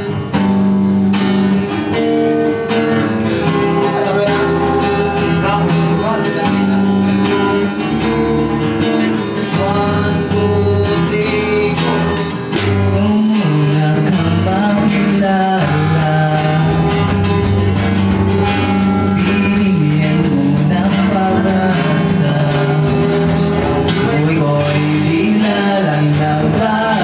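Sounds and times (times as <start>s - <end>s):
electric guitars: 0.0s - 27.0s
man singing into microphone: 9.0s - 17.8s, 18.7s - 27.0s.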